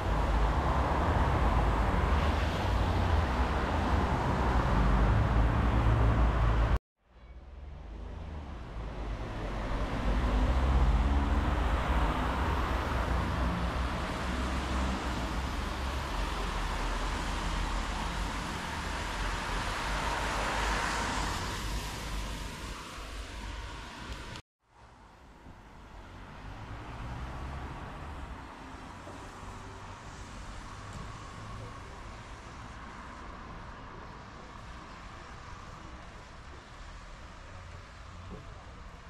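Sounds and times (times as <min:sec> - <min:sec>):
cars driving by: 0:00.0 - 0:06.8, 0:07.5 - 0:24.4, 0:25.8 - 0:39.0.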